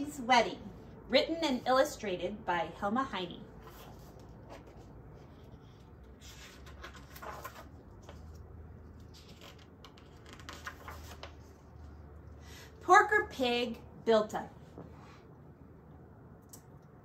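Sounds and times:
steady low hum: 0:00.0 - 0:17.0
paper pages turning: 0:03.6 - 0:11.9.

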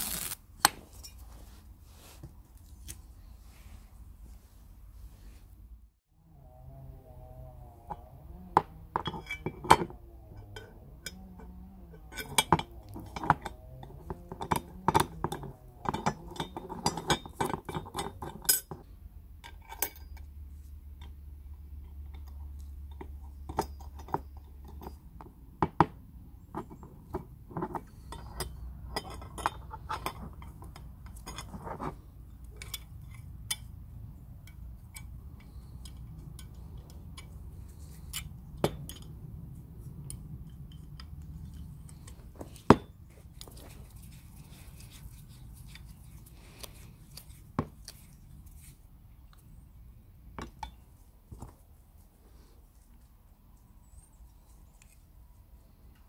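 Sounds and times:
small metal parts clinking: 0:08.9 - 0:18.8.

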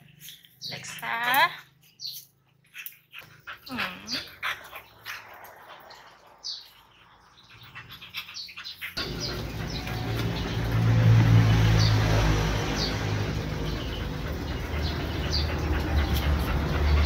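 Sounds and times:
dog breathing: 0:07.6 - 0:17.0
low hum: 0:09.0 - 0:17.0.

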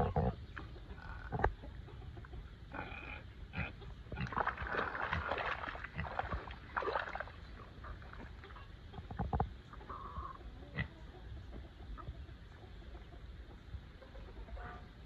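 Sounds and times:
pig grunting: 0:00.0 - 0:00.4, 0:02.7 - 0:05.3
mud sloshing and splashing: 0:04.2 - 0:08.4.

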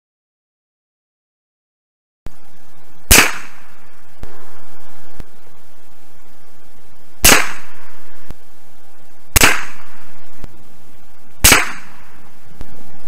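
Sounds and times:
rifle shots cracking: 0:03.1 - 0:03.7, 0:07.2 - 0:07.9, 0:09.4 - 0:10.0, 0:11.4 - 0:12.1.

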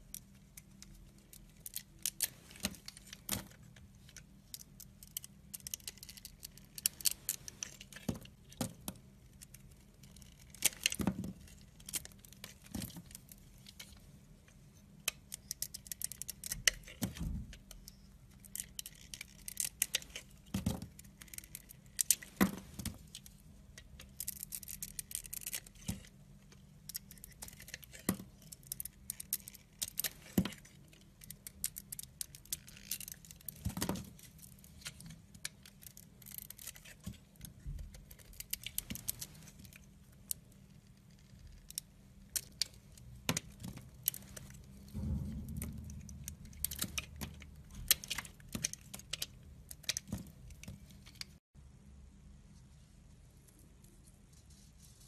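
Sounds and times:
knife shaving soap: 0:04.1 - 0:13.0.

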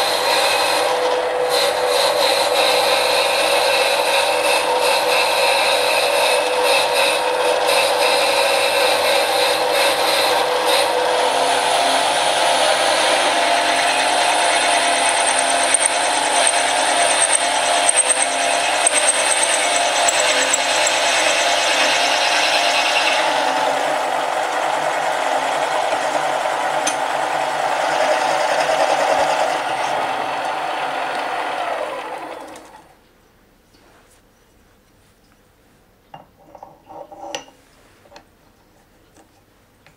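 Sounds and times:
drill scraping into metal: 0:00.0 - 0:32.8
lathe whine: 0:00.0 - 0:32.9
lathe running down: 0:00.1 - 0:32.9.

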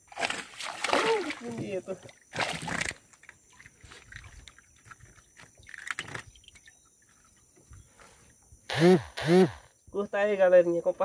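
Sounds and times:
fish splashing out of water: 0:00.1 - 0:01.6
knocks and rustles in wooden canoe: 0:00.1 - 0:06.6.

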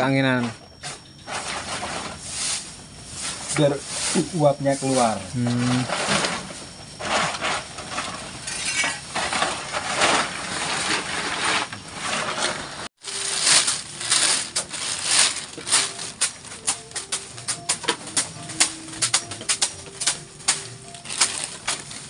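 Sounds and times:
plastic tarp rustling: 0:03.4 - 0:17.7, 0:20.0 - 0:22.0
plastic bag crinkling: 0:08.6 - 0:17.2, 0:20.9 - 0:22.0
grain rattling in a bag: 0:09.0 - 0:17.1, 0:20.6 - 0:22.0.

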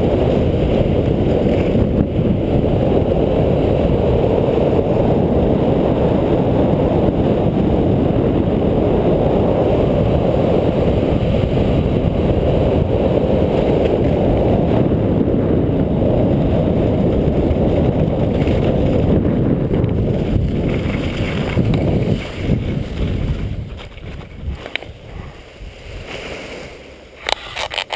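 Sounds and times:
wind rushing over microphone: 0:00.0 - 0:27.9
faint scrapes and crackles: 0:20.3 - 0:27.9.

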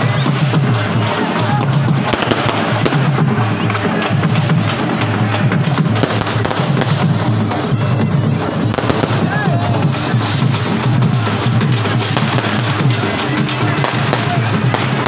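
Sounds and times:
procession music with heavy drumming: 0:00.0 - 0:15.0.

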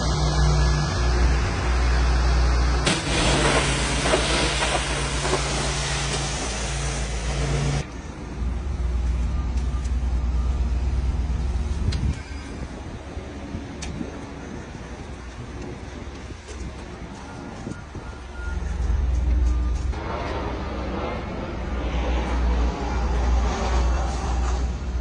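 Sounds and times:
engine hum: 0:00.0 - 0:25.0
pressure washer spray hissing: 0:02.9 - 0:07.8.

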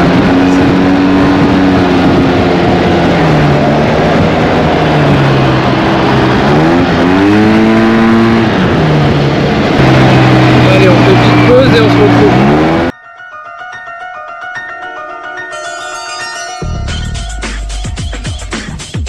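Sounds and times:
scooter engine running: 0:00.0 - 0:12.9
wind rush on microphone: 0:00.0 - 0:12.9.

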